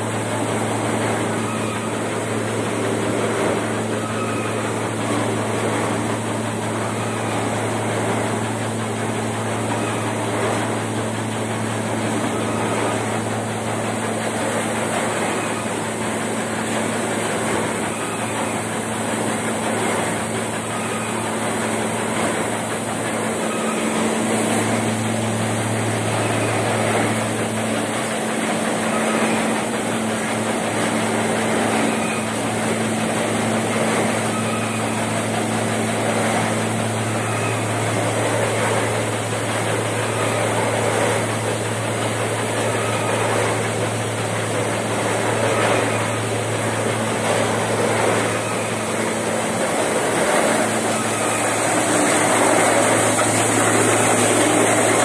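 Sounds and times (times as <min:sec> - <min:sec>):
machine motors humming: 0:00.0 - 0:55.0
air and grain rushing: 0:47.4 - 0:55.0.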